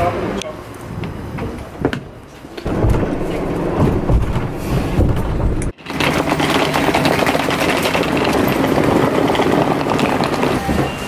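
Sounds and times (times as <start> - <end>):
road noise inside vehicle: 0.0 - 11.0
suitcase wheels on brick paving: 2.3 - 11.0.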